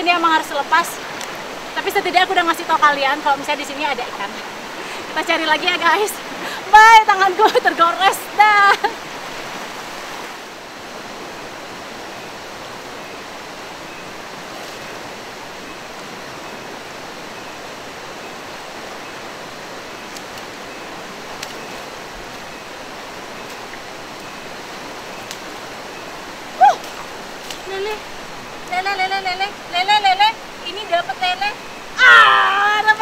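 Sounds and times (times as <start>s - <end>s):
river rushing over rocks: 0.0s - 33.0s
woman exclaiming: 26.6s - 27.0s, 32.0s - 33.0s.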